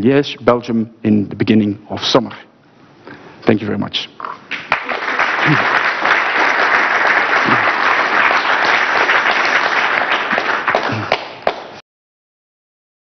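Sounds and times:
audience applauding: 4.5 - 11.8.

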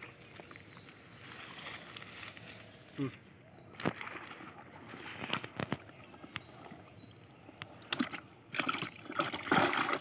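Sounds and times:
water splashing in basin: 7.9 - 10.0.

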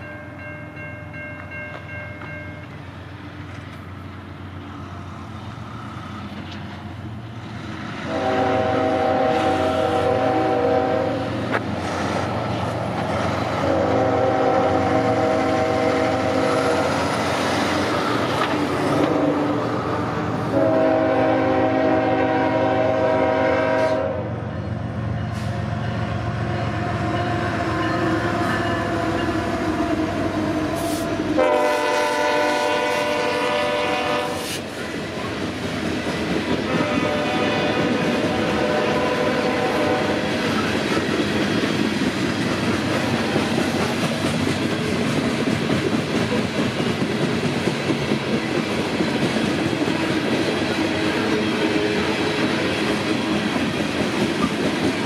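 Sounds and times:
train passing: 0.0 - 55.0
locomotive air horn blasts: 8.1 - 11.4, 13.6 - 17.0, 20.5 - 24.4, 30.4 - 34.6, 36.6 - 40.3.

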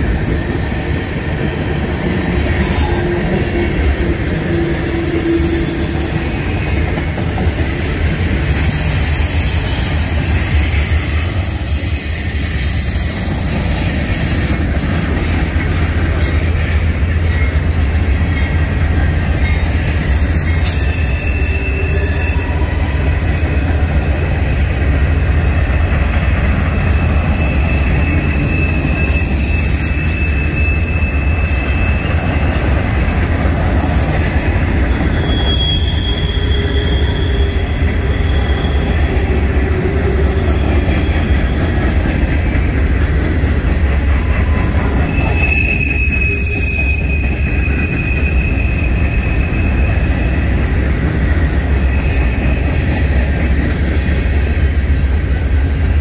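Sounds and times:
freight train rumbling on rails: 0.0 - 56.0
high wheel squeals: 2.6 - 14.4, 19.4 - 42.0, 44.2 - 50.8, 51.4 - 53.1.

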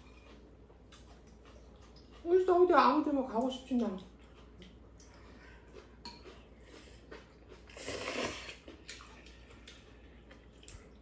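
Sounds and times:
faint chewing: 0.0 - 11.0
noisy slurp of noodles: 7.7 - 8.7.

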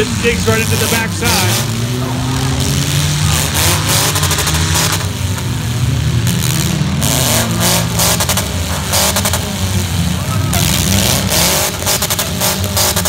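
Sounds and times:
car engines revving hard: 0.0 - 13.0
cars banging and clattering: 0.0 - 13.0.

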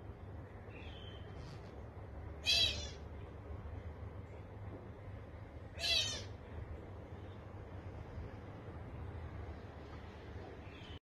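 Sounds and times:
steady low hum: 0.0 - 11.0
bird giving high calls: 2.4 - 3.0, 5.8 - 6.4.

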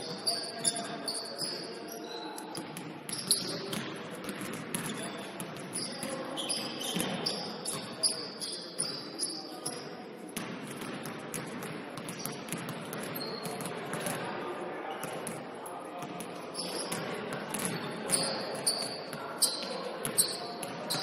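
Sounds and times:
sneakers squeaking: 0.0 - 10.0, 10.8 - 14.2, 16.0 - 21.0
players' voices: 0.0 - 21.0
basketball bouncing on court: 2.6 - 7.9, 10.4 - 14.2, 16.0 - 21.0.

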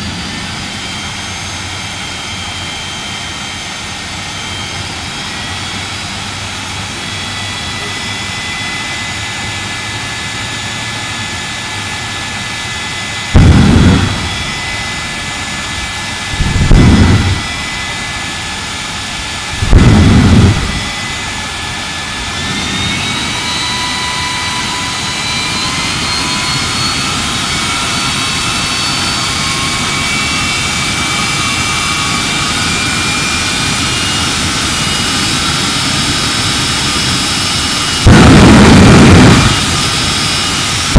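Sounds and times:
jet engine turbine whine: 0.0 - 40.9
deep bursts of jet thrust: 13.3 - 18.3, 19.4 - 21.4, 37.0 - 40.9.

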